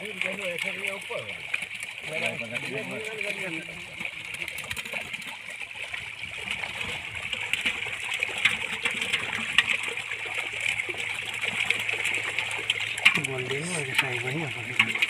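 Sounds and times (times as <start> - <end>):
fish splashing in water: 0.0 - 15.0.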